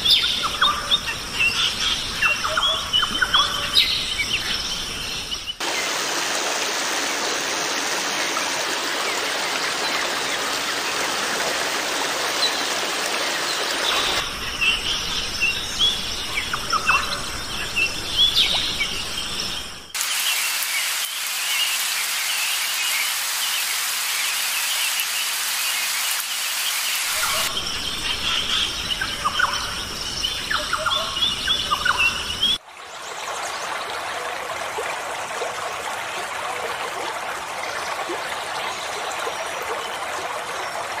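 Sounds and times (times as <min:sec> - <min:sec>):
stream running over rocks: 0:05.6 - 0:19.0, 0:19.9 - 0:29.5, 0:31.8 - 0:41.0
heavy rain on a pond: 0:05.6 - 0:41.0
birds chirping: 0:12.3 - 0:32.6.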